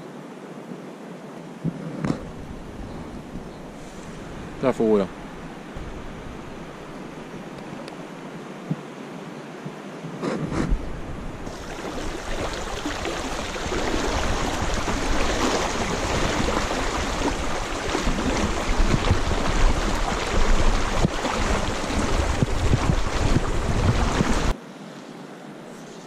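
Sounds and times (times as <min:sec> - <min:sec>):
river rushing over stones: 0:03.7 - 0:08.5, 0:10.9 - 0:24.6.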